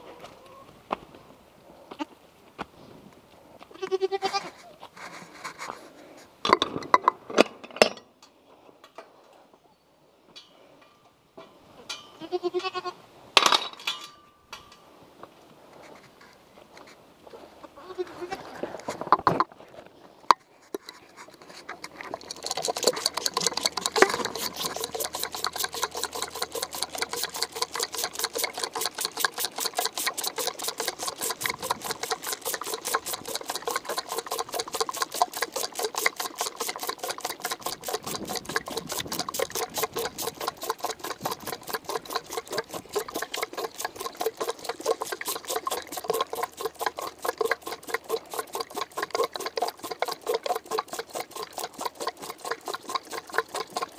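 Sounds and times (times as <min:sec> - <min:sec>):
goat kid sucking and gulping: 0:20.7 - 0:53.9.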